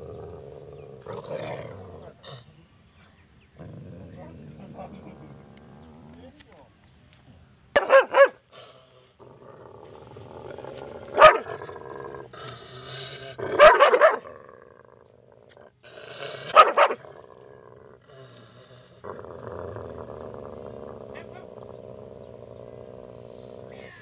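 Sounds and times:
dog growling low: 0.0 - 6.5, 8.5 - 13.6, 14.2 - 24.0
dog barking: 7.8 - 8.4, 11.2 - 11.5, 13.6 - 14.2, 16.5 - 17.0.

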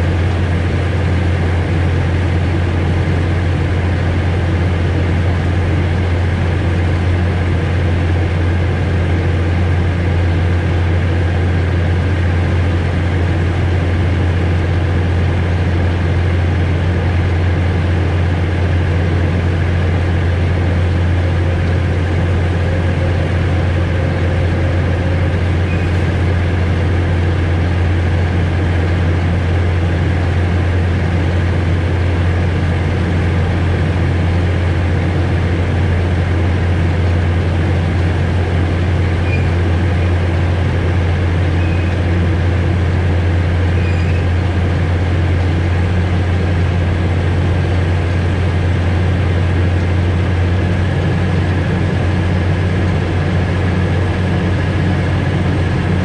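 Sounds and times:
train engine drone: 0.0 - 56.0.

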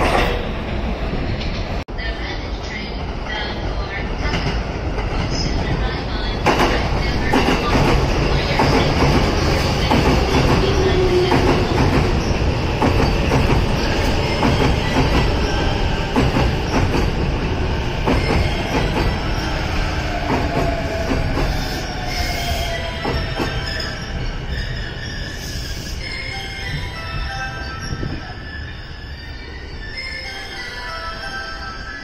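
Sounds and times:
train rumbling past: 0.0 - 32.0.

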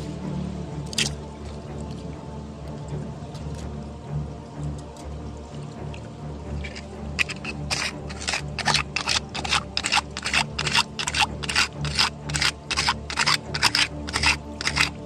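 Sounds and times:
metal tweezers clicking on stones: 6.6 - 15.0.

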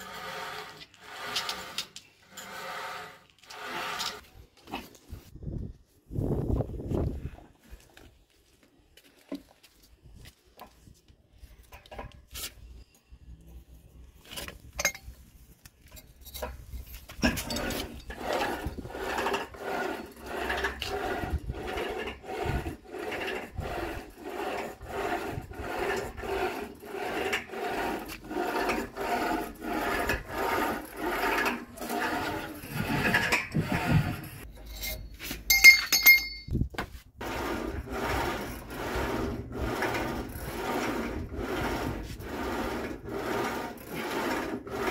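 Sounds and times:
rope creaking over pulleys: 0.0 - 5.3, 15.7 - 44.9
sharp metallic clinks: 34.7 - 36.5.

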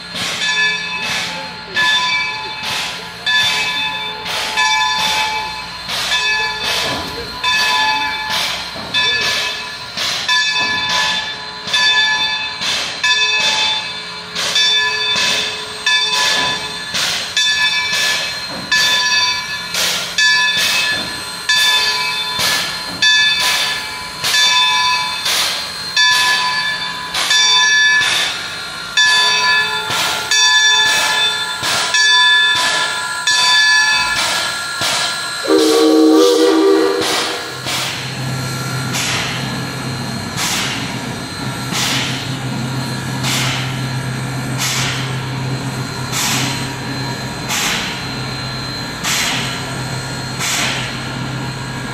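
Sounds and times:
locomotive bell ringing: 0.0 - 51.9
steam whistle blast: 35.4 - 37.6.

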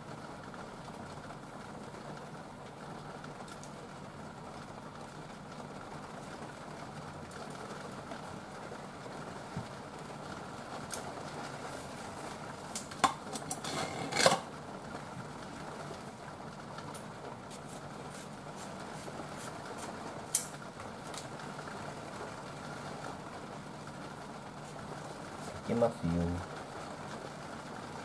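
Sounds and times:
steady background hum: 0.5 - 28.0.

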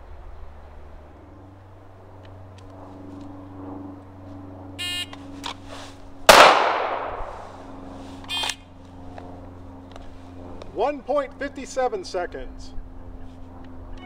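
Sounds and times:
loud pistol shot: 6.3 - 7.4.

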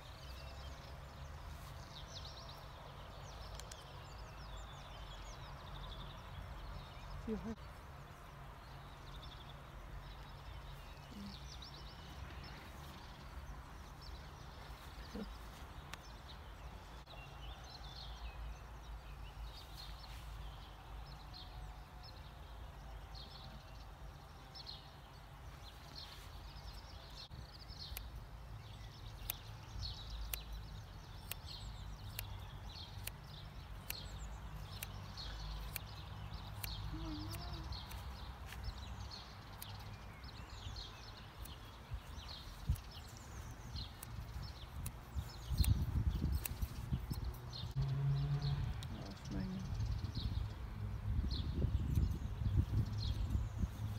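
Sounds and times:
birds chirping: 0.0 - 53.9
scissors snipping hair: 27.7 - 28.2, 29.1 - 38.8, 39.5 - 39.9, 41.4 - 47.4.

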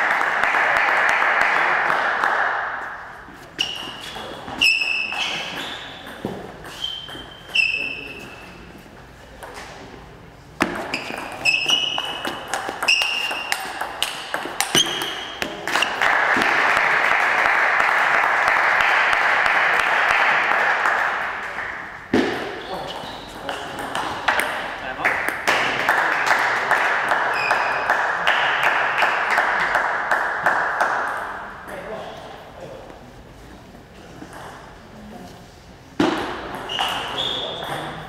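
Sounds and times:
crowd noise: 0.0 - 6.8, 7.5 - 38.0
table tennis ball pinging: 3.6 - 8.0, 10.6 - 16.8, 22.1 - 25.6, 36.0 - 38.0.

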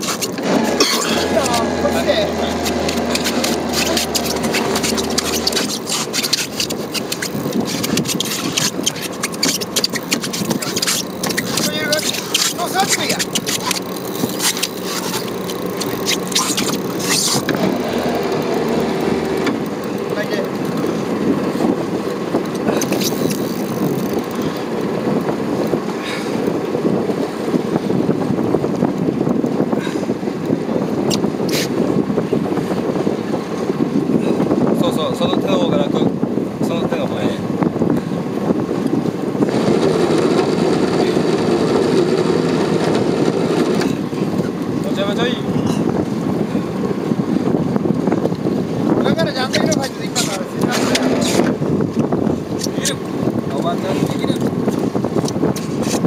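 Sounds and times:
fishing reel rasping with clicks: 0.0 - 21.0, 22.5 - 24.6
boat engine rumbling: 0.0 - 56.0
wind buffeting microphone: 0.0 - 56.0
low hum: 0.4 - 8.2.

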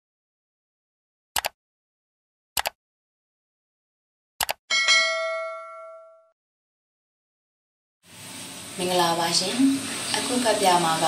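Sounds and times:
mouse clicks: 1.4 - 1.6, 4.4 - 4.6
bright bell ding: 4.7 - 6.4.

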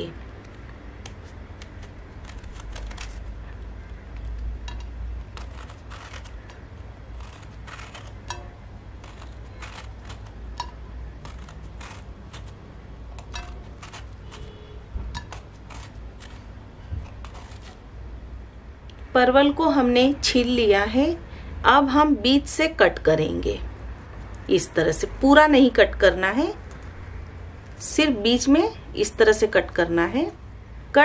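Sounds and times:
low steady hum: 0.0 - 31.0
peeler scraping vegetable skin: 0.4 - 4.5, 5.2 - 17.8.

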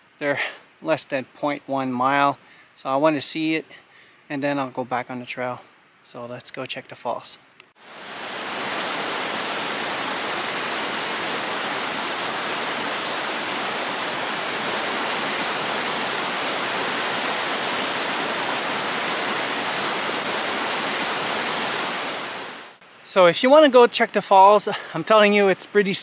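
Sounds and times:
waterfall rushing: 7.8 - 22.8.

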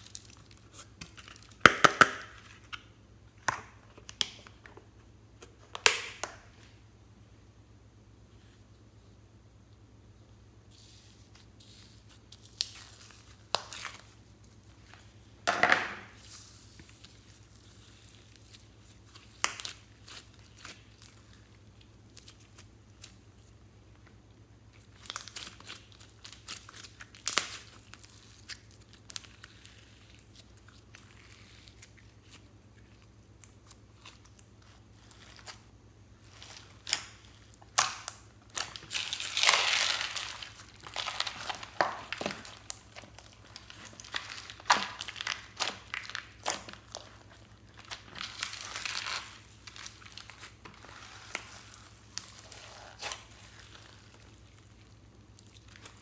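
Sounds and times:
slime popping and crackling: 0.0 - 4.5, 15.8 - 23.2, 24.7 - 56.0.

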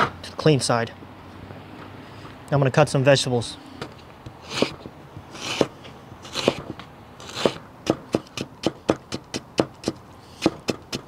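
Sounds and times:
knife slicing carrot: 4.5 - 4.8, 5.4 - 6.6, 7.2 - 9.2.

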